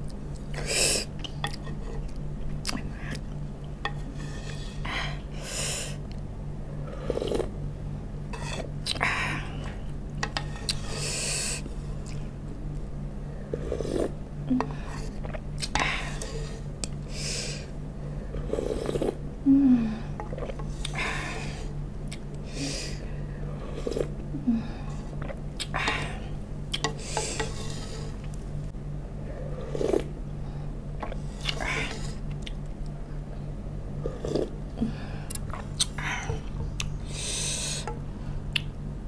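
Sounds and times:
slurping broth from spoon: 0:03.9 - 0:04.8, 0:07.0 - 0:07.5, 0:10.4 - 0:11.7, 0:13.6 - 0:14.2, 0:18.4 - 0:19.2, 0:26.8 - 0:28.4, 0:29.6 - 0:30.1, 0:31.0 - 0:32.2, 0:34.0 - 0:34.6.

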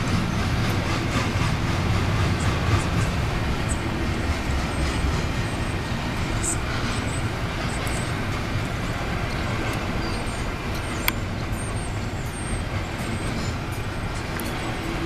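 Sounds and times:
freight train cars rolling past: 0:00.0 - 0:15.0.

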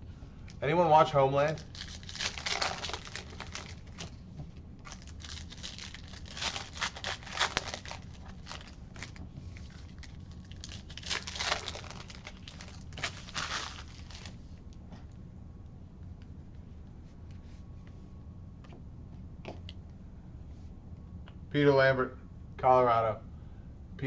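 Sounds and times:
wrapper tearing and crinkling: 0:01.4 - 0:04.1, 0:04.8 - 0:14.4
cards being flipped through: 0:04.9 - 0:09.8, 0:10.8 - 0:14.3.

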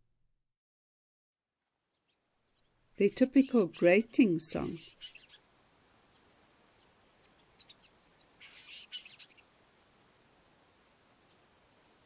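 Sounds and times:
harsh grating bird call: 0:04.6 - 0:05.4, 0:08.4 - 0:09.4.

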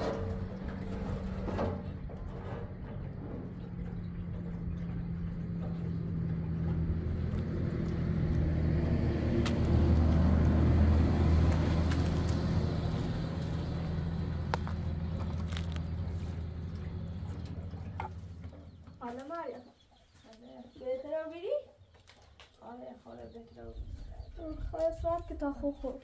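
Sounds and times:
vehicle engine passing: 0:00.0 - 0:19.0.

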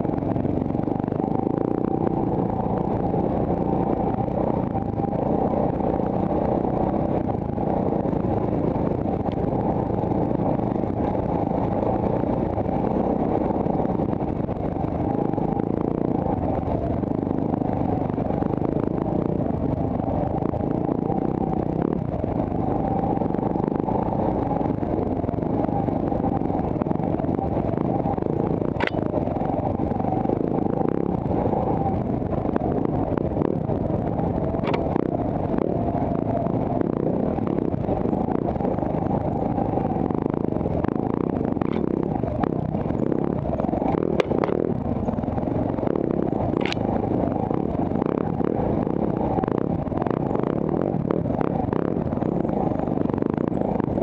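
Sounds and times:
dirt bike engine running: 0:00.0 - 0:54.0
sharp clicks: 0:28.8 - 0:29.0, 0:46.6 - 0:46.8.

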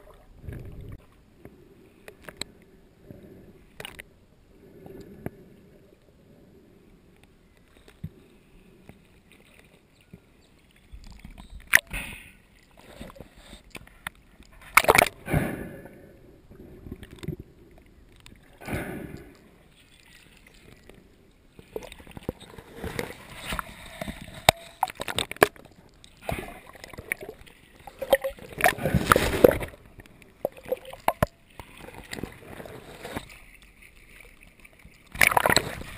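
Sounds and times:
water sloshing and splashing: 0:12.6 - 0:15.4, 0:16.6 - 0:35.9.

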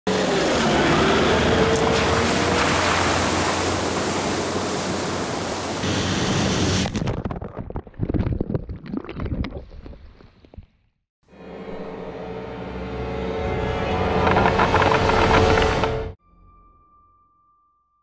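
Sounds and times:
truck engine revving: 0:00.1 - 0:06.8
water splashing: 0:01.5 - 0:05.9.

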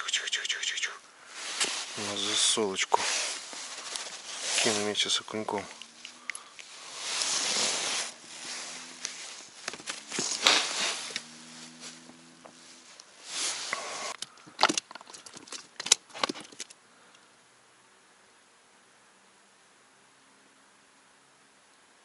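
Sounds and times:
gloved hands rustling and scraping: 0:01.2 - 0:16.7.

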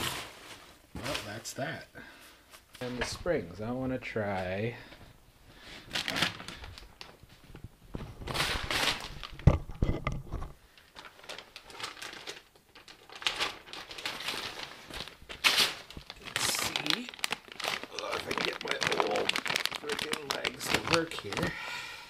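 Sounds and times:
paper crinkling and rustling: 0:05.8 - 0:21.6.

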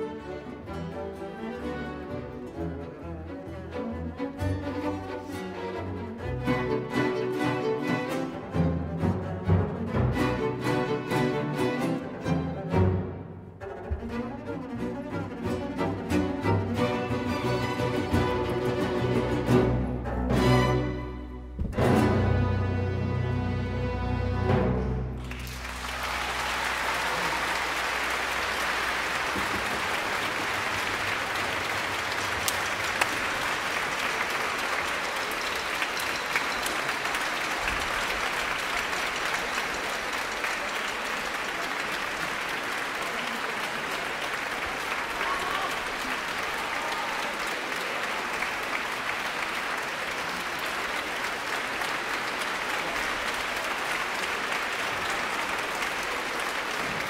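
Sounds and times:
audience applauding: 0:25.2 - 0:57.0.

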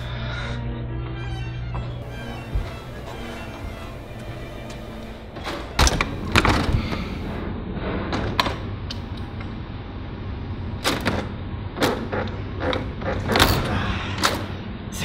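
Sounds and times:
steady low hum: 0:00.0 - 0:15.0
heavy doors clunking and knocking: 0:01.4 - 0:07.4.

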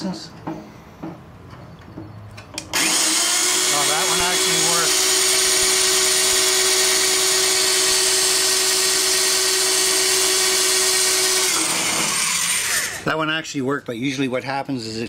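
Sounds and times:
electric drill whining: 0:02.6 - 0:13.1.

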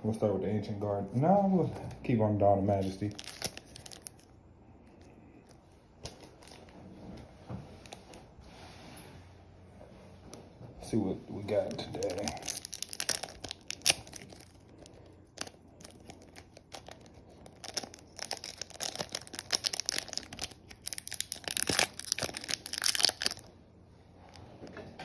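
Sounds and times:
foil wrapper crinkling and tearing: 0:02.7 - 0:04.4, 0:11.4 - 0:23.5.

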